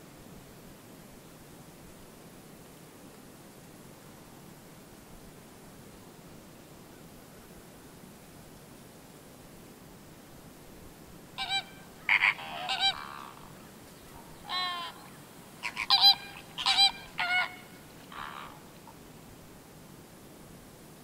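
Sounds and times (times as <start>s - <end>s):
flamingos honking: 11.4s - 19.0s.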